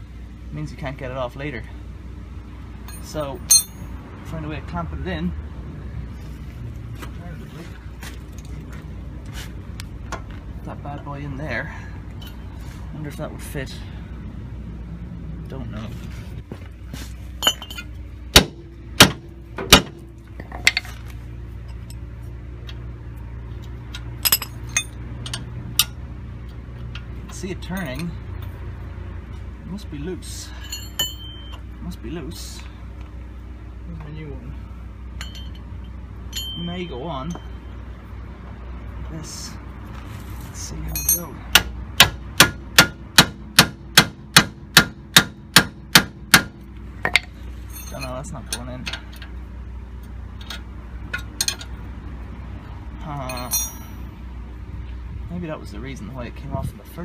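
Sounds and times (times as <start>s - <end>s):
hand tools clanking on metal: 2.9s - 3.9s, 17.4s - 17.9s, 23.9s - 26.0s, 30.4s - 31.6s, 35.2s - 36.7s, 40.8s - 41.7s, 47.0s - 49.3s, 50.4s - 51.8s, 53.3s - 54.0s
hammer striking metal: 3.5s - 3.8s, 17.4s - 20.0s, 41.0s - 48.0s, 53.3s - 54.0s.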